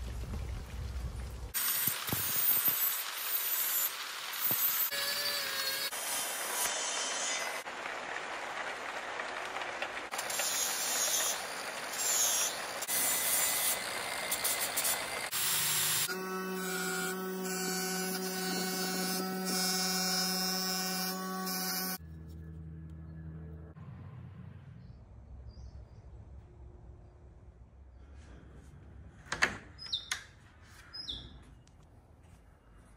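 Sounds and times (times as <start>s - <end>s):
power tool hissing on metal: 1.6s - 7.6s, 10.1s - 17.8s.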